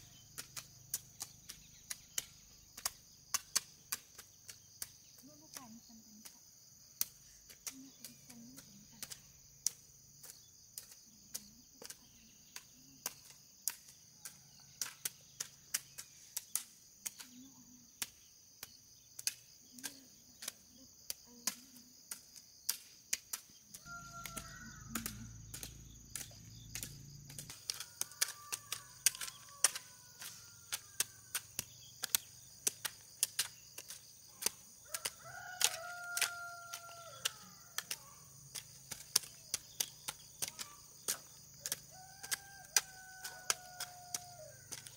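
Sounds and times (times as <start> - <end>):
birds chirping: 0.0 - 5.4
insects shrilling: 18.1 - 44.9.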